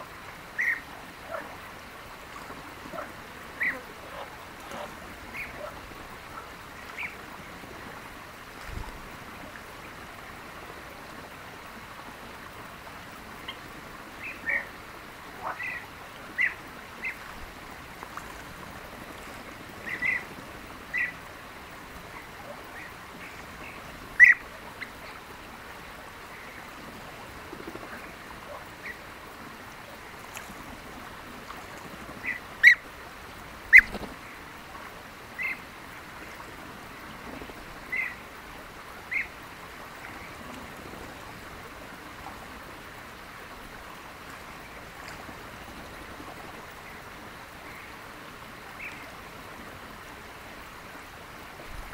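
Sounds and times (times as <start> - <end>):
steady background hiss: 0.0 - 51.9
birds calling: 0.6 - 1.5, 2.9 - 7.2, 19.8 - 21.2, 22.1 - 25.2, 33.7 - 34.1, 39.1 - 39.4.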